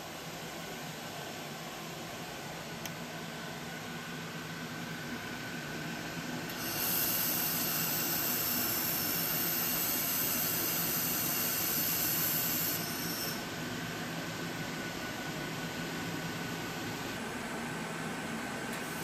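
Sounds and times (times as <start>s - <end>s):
laser welder hissing: 6.5s - 13.4s.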